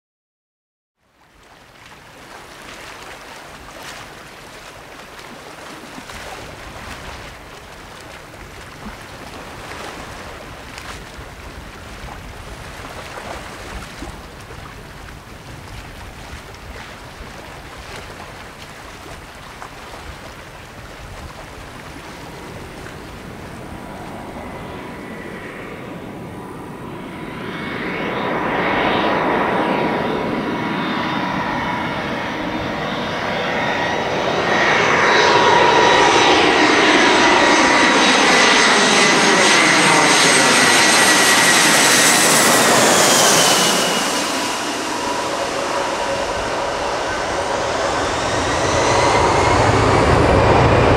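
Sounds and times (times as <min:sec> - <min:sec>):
waves: 0:01.0 - 0:50.9
wind: 0:01.0 - 0:50.9
jet engines whining: 0:22.2 - 0:50.9.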